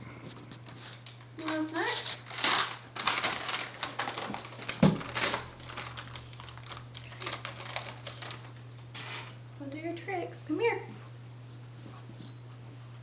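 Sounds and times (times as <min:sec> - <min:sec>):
plastic bag crinkling: 0:00.5 - 0:09.4.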